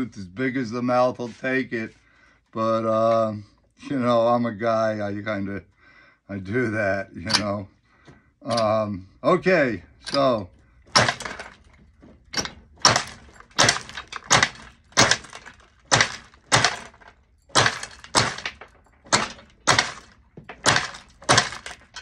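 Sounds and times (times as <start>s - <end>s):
glass cracking under chopping blade: 12.4s - 22.0s.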